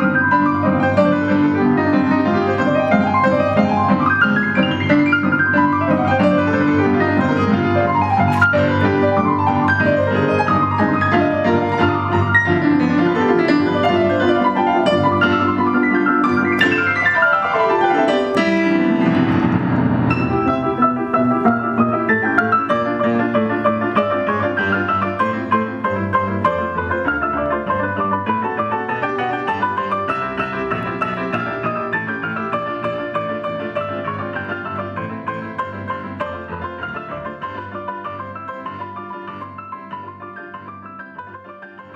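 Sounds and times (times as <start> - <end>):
brisk piano music: 0.0 - 41.9.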